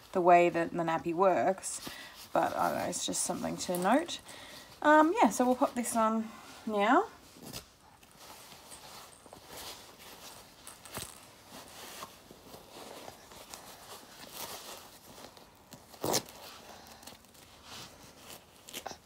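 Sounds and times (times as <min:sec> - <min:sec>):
fabric rustling: 0:00.0 - 0:19.0
velcro tabs rasping: 0:10.8 - 0:19.0.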